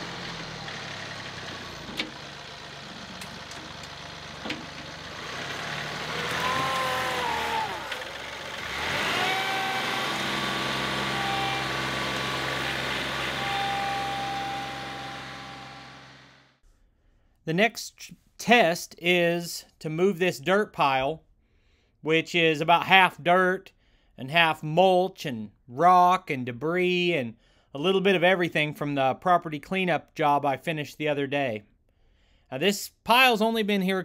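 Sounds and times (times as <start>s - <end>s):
tractor diesel engine: 0.0s - 16.6s.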